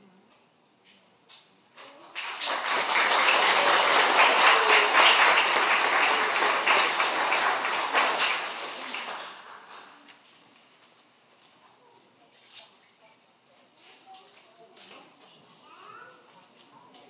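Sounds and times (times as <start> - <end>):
audience applauding: 1.9 - 10.2.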